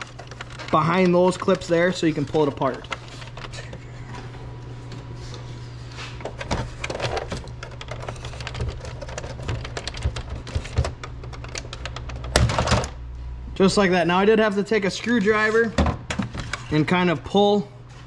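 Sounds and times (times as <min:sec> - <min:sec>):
steady low hum: 0:00.0 - 0:18.0
plastic cover clicking and creaking: 0:06.4 - 0:12.9.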